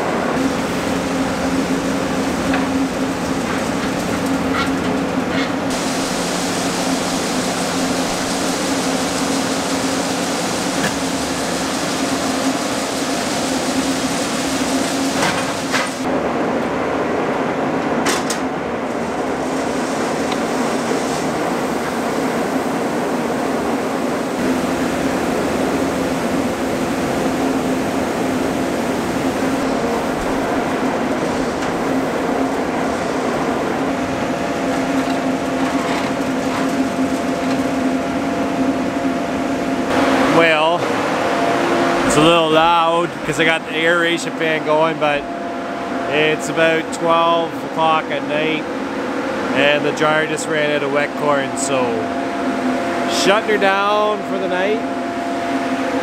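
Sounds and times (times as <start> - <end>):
grain machinery droning: 0.0 - 16.4, 18.8 - 56.0
hiss: 5.7 - 16.1, 19.4 - 35.2.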